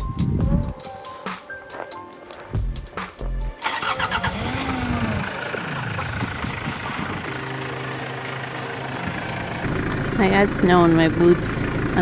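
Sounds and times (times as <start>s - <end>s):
diesel engine cranking and idling: 3.3s - 12.0s.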